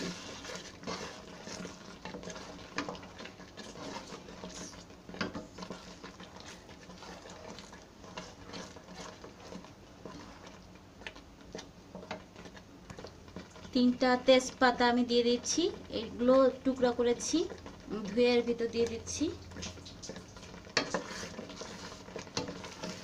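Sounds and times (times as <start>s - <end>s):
jam sloshing: 0.0s - 13.9s
spatula scraping pan: 0.0s - 14.2s, 17.2s - 23.0s.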